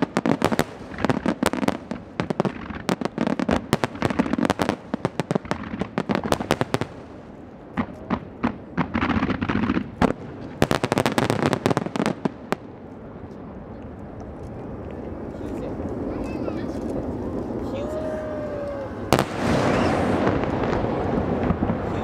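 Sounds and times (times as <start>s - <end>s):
fireworks bursting: 0.0s - 22.0s.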